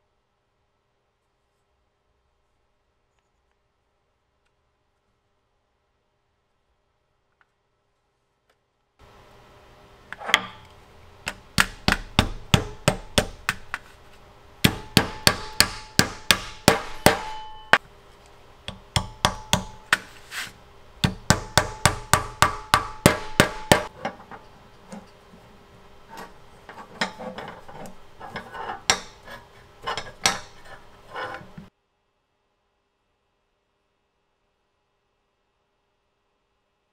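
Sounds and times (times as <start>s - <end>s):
hammer tapping brass pins: 10.2s - 13.8s, 14.6s - 17.8s, 18.6s - 20.2s, 21.0s - 25.1s, 26.2s - 31.7s.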